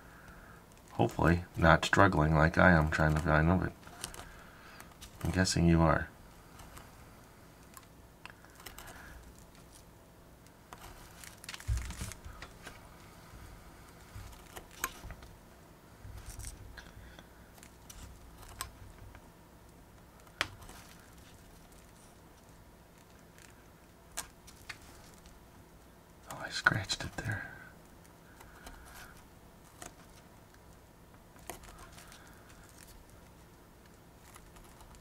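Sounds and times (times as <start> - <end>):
paper rustling: 10.7 - 15.3, 20.2 - 25.4, 31.4 - 35.0.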